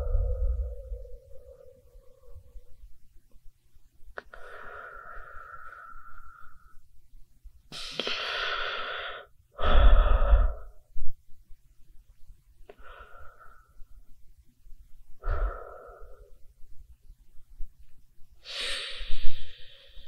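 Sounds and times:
person breathing: 0.0 - 2.8, 4.2 - 6.9, 7.7 - 11.0, 12.7 - 14.1, 15.1 - 16.6, 18.4 - 20.0.

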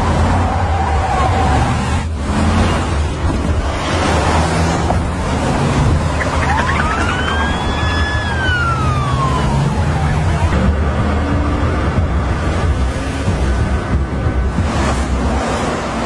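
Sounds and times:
police siren wailing: 6.1 - 11.1.

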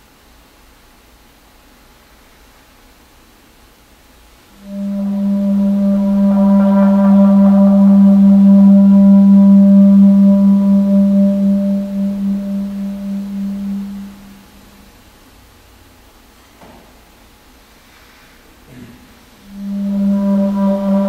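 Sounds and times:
clarinet low sustained note: 4.6 - 15.0, 19.4 - 21.0.

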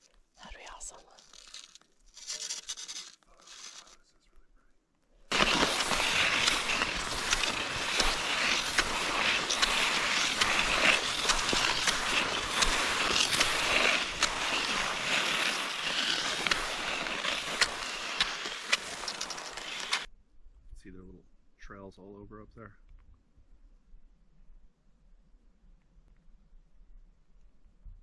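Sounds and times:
skis scraping over snow: 1.1 - 4.0, 5.3 - 20.1.

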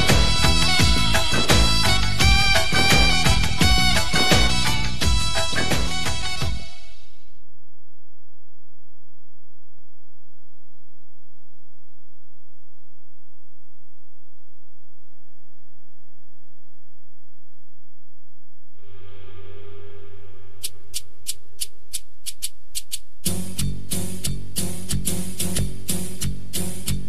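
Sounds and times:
music: 0.0 - 7.2, 22.8 - 27.0.

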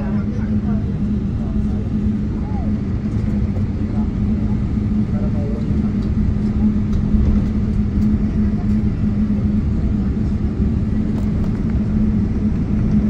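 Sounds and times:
jet engines low rumble: 0.0 - 13.0.

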